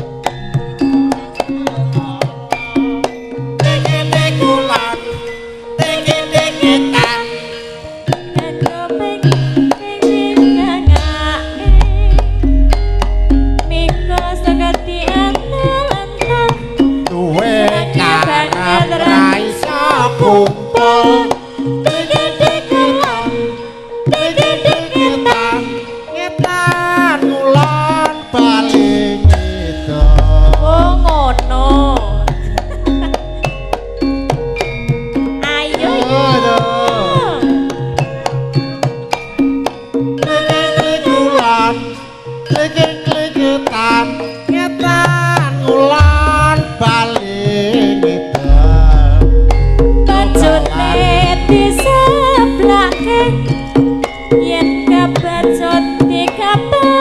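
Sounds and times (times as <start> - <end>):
ringing metallophone tones: 0.0 - 57.0
wavering melody line: 8.2 - 57.0
hand drum strokes: 10.6 - 20.6, 27.6 - 41.5, 45.1 - 47.7, 48.3 - 55.4
deep low tones: 10.9 - 17.3, 29.2 - 35.5, 48.5 - 53.4
person singing sliding notes: 24.1 - 33.5, 35.4 - 38.3, 42.6 - 53.5.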